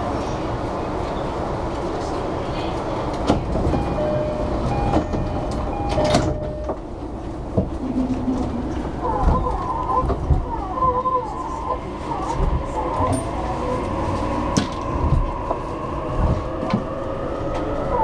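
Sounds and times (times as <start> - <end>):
stopped train humming: 0.0 - 18.0
sliding doors clunking: 3.2 - 10.7
two-tone door chime: 3.7 - 6.8.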